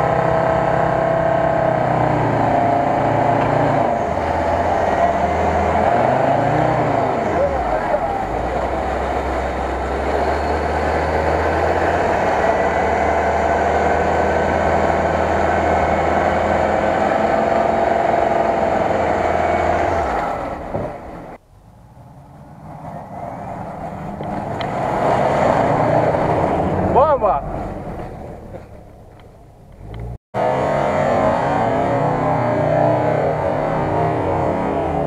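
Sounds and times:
engine revving hard: 0.0s - 20.7s, 22.6s - 28.2s, 29.8s - 35.0s
faint engine: 0.0s - 35.0s.

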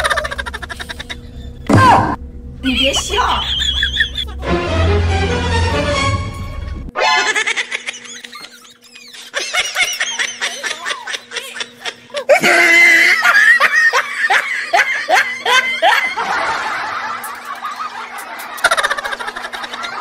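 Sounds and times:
women laughing and shrieking: 3.2s - 4.4s, 7.0s - 20.0s.

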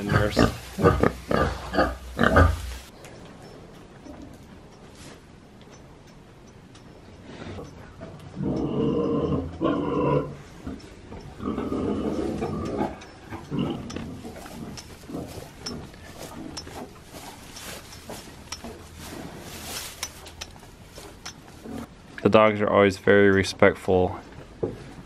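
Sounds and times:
calf munching dry hay: 0.0s - 2.9s, 13.3s - 21.9s.

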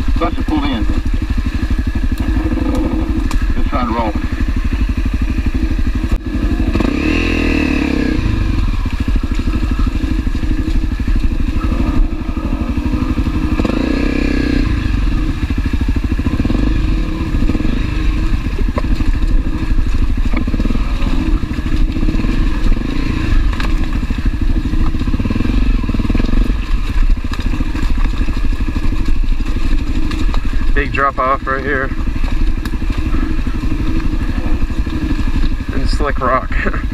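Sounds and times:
motorcycle engine running: 0.0s - 36.9s.

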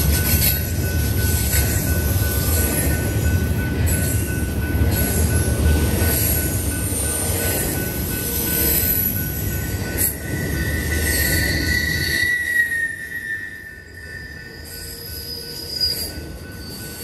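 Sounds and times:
freight train wheels rumbling: 0.0s - 17.0s
wheel squeal: 10.3s - 17.0s.

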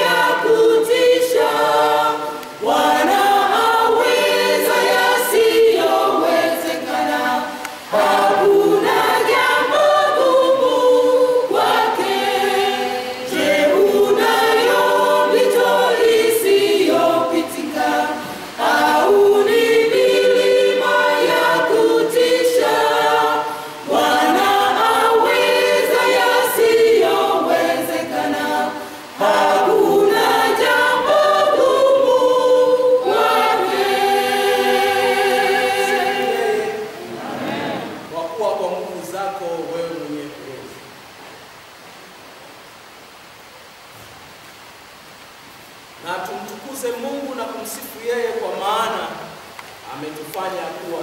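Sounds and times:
mixed choir singing a cappella: 0.0s - 40.7s.

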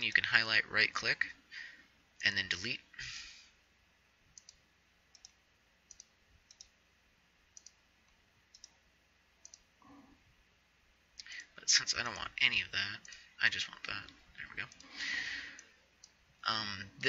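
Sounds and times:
computer mouse clicks: 4.3s - 6.8s, 7.6s - 8.8s, 9.4s - 9.7s.

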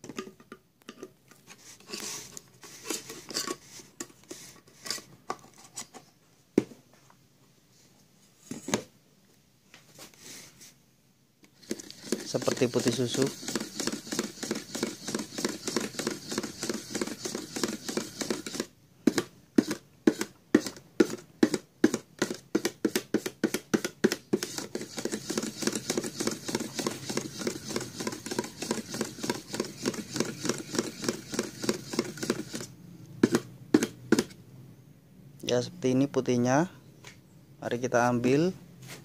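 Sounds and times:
paint stirred in metal can: 11.6s - 18.7s, 24.4s - 32.7s.

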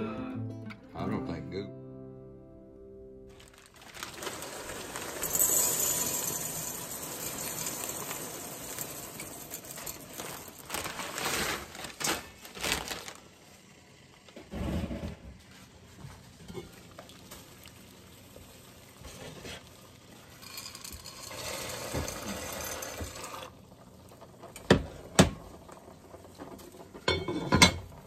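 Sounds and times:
dried beans pouring into pot: 3.3s - 13.4s, 19.7s - 23.6s
pot lid clattering: 27.1s - 27.9s.

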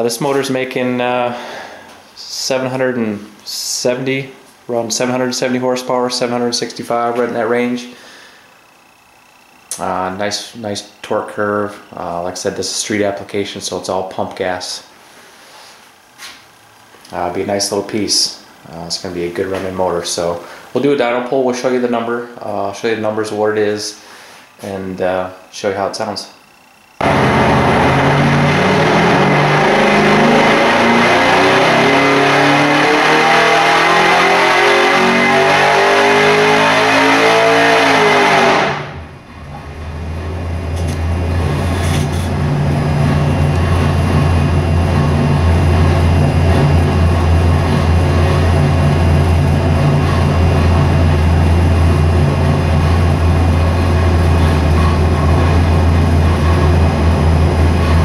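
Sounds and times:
engine revving at full throttle: 27.0s - 58.0s
engine idling: 38.9s - 58.0s.

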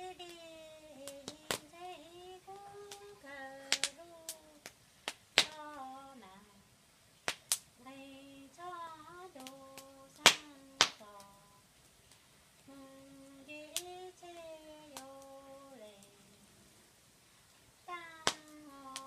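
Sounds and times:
woman singing unaccompanied: 0.0s - 4.8s, 5.4s - 6.8s, 7.8s - 11.7s, 12.6s - 16.6s, 17.8s - 19.0s
wood fire crackling pops: 0.0s - 5.9s, 7.2s - 7.8s, 9.3s - 16.3s, 17.5s - 19.0s.

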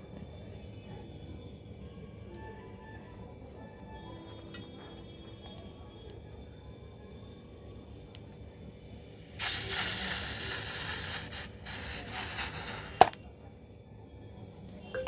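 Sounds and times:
balloon hissing air and slime: 9.4s - 13.2s.

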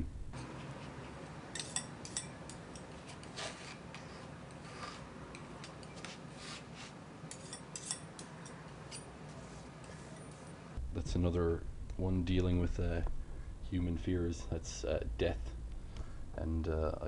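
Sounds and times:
palette knife scraping and clicking: 7.3s - 9.1s.

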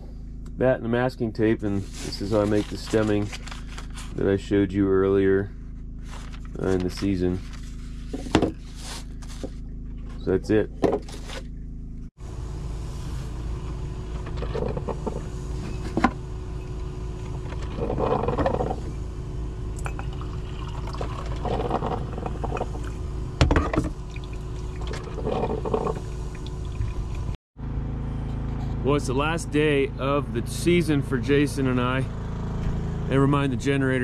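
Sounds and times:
steady low hum: 0.0s - 34.0s
coffee gurgling and pouring: 17.6s - 19.0s, 19.8s - 27.4s.

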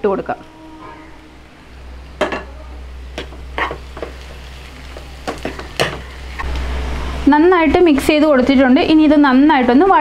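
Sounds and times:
faint frying sizzle: 0.0s - 10.0s
spatula scraping a wok: 3.1s - 6.4s.

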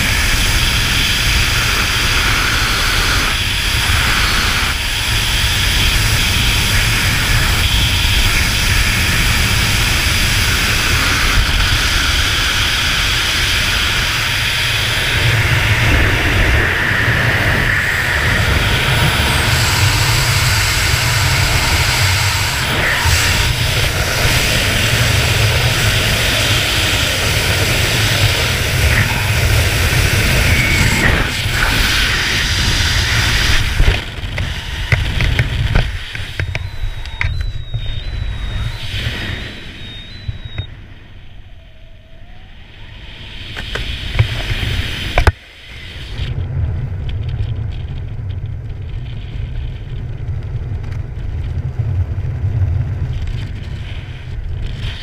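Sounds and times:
freefall wind rush: 0.0s - 55.0s
faint high beeps: 36.4s - 42.2s.

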